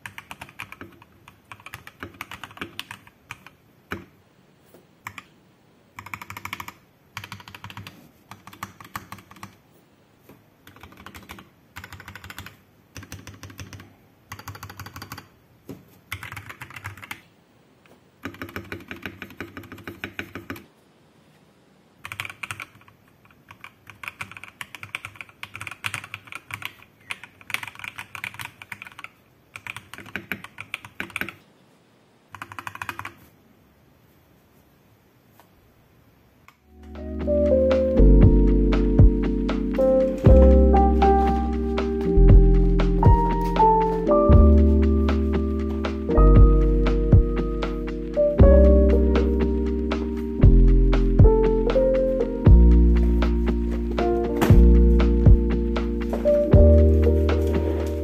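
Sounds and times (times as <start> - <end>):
mechanical keyboard typing: 0.0 - 4.1, 5.0 - 5.3, 5.9 - 9.6, 10.6 - 15.3, 16.1 - 17.3, 18.2 - 20.7, 22.0 - 31.4, 32.3 - 33.3.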